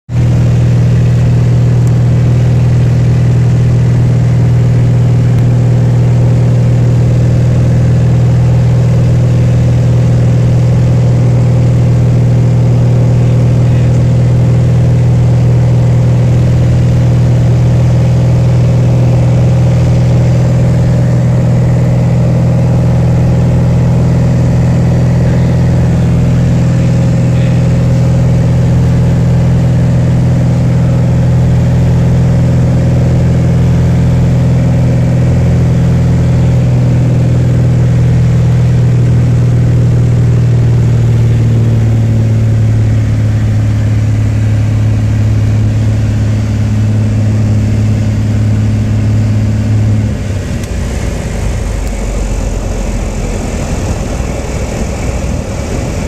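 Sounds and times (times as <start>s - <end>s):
light aircraft engine and propeller: 0.1s - 56.0s.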